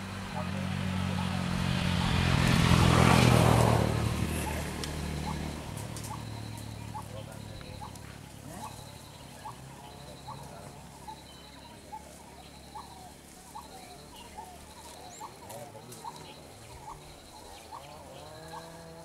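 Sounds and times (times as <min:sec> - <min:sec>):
bird high rapid trill: 0:04.4 - 0:19.0.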